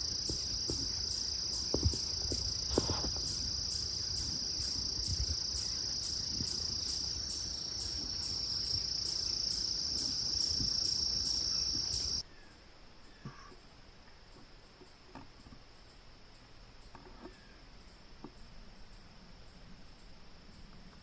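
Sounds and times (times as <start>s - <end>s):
insect high-pitched trill: 0.0s - 12.2s
insect pulsing call: 0.0s - 12.6s
faint woodland sound: 0.0s - 21.0s.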